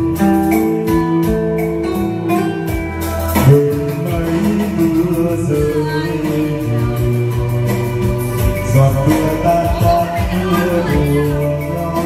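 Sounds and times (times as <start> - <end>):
karaoke backing music: 0.0 - 12.0
man singing into microphone: 3.4 - 12.0.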